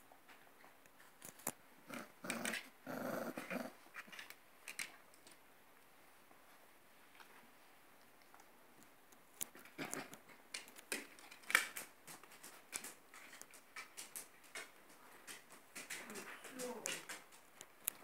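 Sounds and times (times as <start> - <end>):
dogs scuffling on floor: 9.5 - 18.0.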